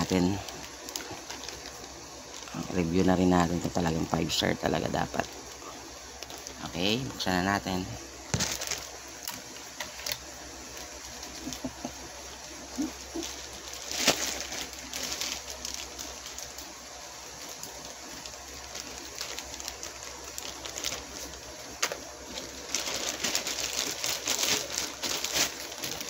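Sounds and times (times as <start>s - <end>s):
packaging rustling and crinkling: 0.0s - 26.0s
sharp tear of packaging: 12.8s - 16.6s, 18.1s - 26.0s.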